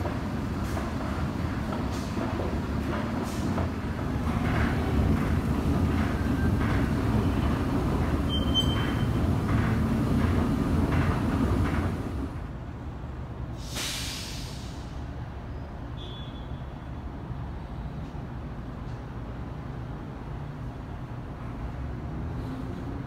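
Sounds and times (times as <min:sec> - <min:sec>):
faint regular clatter: 0:00.0 - 0:12.3
low rumble in a transit station: 0:00.0 - 0:23.0
short rush of hiss: 0:13.6 - 0:15.0.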